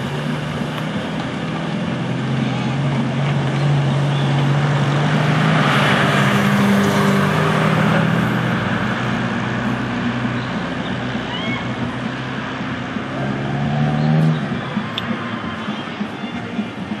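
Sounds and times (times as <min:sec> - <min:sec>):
street noise: 0:00.0 - 0:17.0
vehicle engine running: 0:00.0 - 0:17.0.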